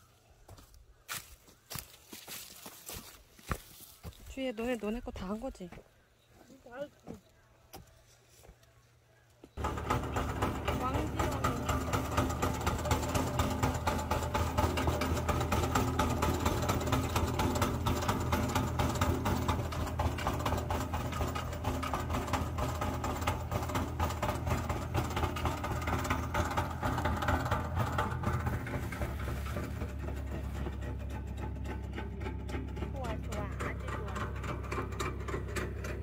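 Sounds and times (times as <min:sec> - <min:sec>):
tractor engine running: 0:09.5 - 0:36.0
harvester conveyor clattering: 0:09.6 - 0:36.0.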